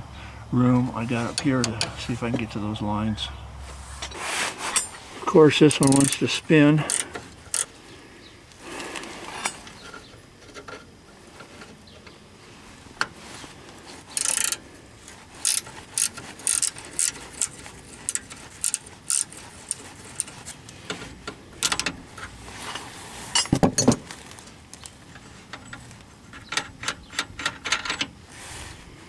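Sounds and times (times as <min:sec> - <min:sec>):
ratcheting wrench clicking: 0:05.7 - 0:07.7, 0:14.1 - 0:14.6, 0:15.4 - 0:22.3.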